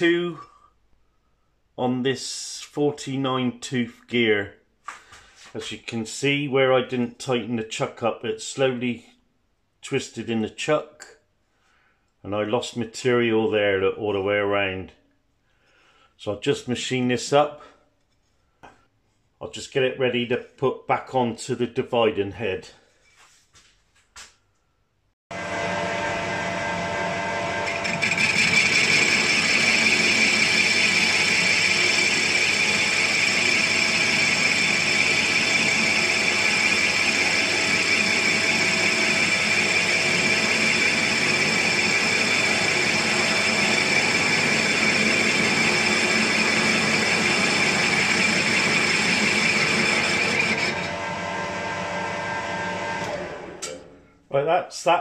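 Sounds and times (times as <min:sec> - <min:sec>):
metal lathe running: 0:25.3 - 0:54.0
high grainy metal cutting noise: 0:25.6 - 0:51.0.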